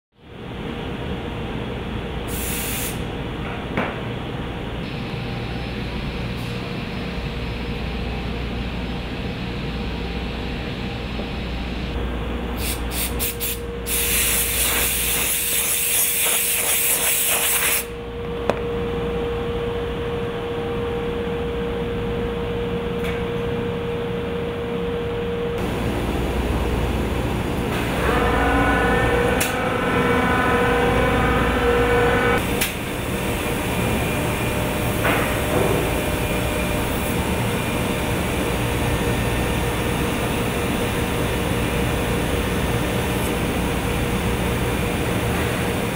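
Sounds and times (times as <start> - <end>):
multi-tone whine: 4.8 - 12.2, 18.0 - 45.4
cnc router machining wood: 25.6 - 40.0.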